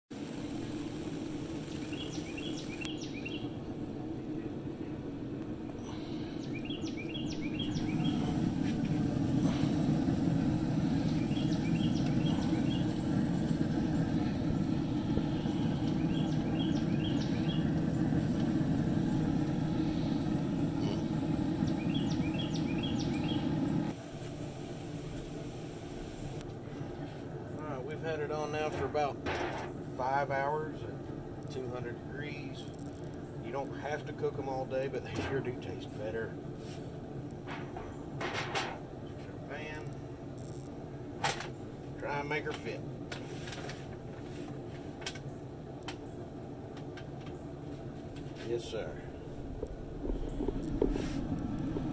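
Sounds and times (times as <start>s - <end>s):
songbird singing: 1.4s - 5.2s, 5.8s - 24.0s, 48.8s - 51.9s
low rumble: 3.4s - 24.0s, 49.0s - 51.9s.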